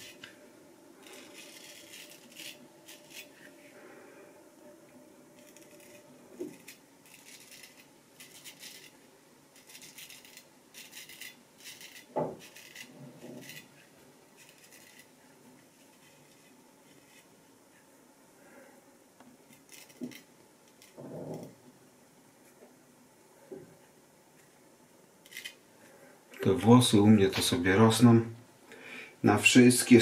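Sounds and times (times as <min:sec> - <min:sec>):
razor scraping stubble: 0:01.0 - 0:03.4, 0:05.4 - 0:09.0, 0:09.6 - 0:13.7, 0:14.4 - 0:15.1.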